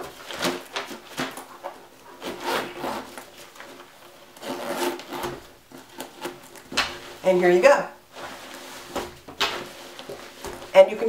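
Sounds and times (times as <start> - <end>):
zipper rasping shut: 2.2 - 3.2, 4.4 - 6.4
bag rubbing on wooden table: 4.4 - 6.3.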